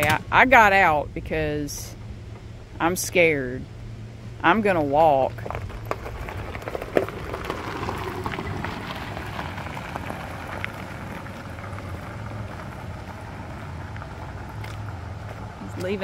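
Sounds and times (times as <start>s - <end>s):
golf cart driving on gravel: 0.0s - 16.0s
footsteps on gravel: 4.8s - 16.0s.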